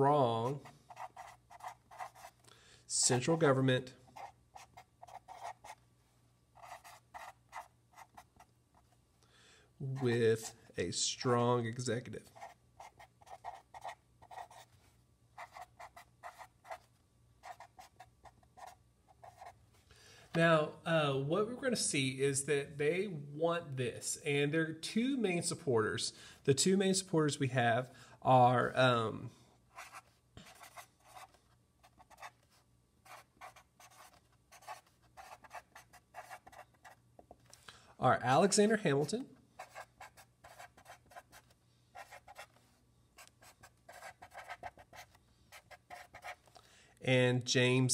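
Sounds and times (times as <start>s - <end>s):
marker scratching on paper: 0.4s - 2.4s, 4.2s - 5.8s, 6.6s - 8.9s, 12.3s - 14.7s, 15.4s - 19.6s, 29.7s - 37.0s, 39.0s - 46.5s
felt-tip marker writing on paper: 0.5s - 2.3s, 33.0s - 37.0s.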